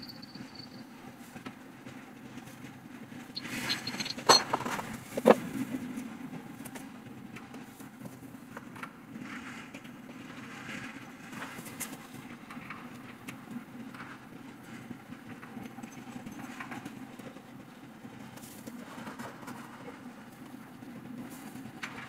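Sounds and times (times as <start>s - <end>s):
steady low hum: 0.0s - 1.2s
metal tubes and mesh clattering: 3.4s - 5.4s
sharp metal knocks: 3.4s - 5.4s.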